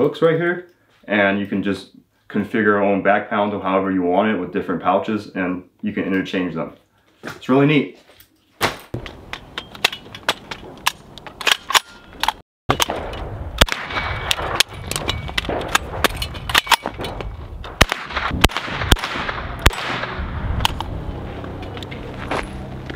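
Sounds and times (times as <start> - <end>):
rifle shots: 12.7 - 20.8.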